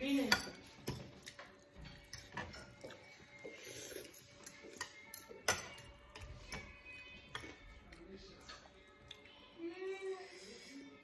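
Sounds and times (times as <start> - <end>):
cutlery clinking on ceramic plates: 0.1 - 3.1, 4.4 - 7.7
people chewing noodles: 0.8 - 6.6, 7.4 - 9.4.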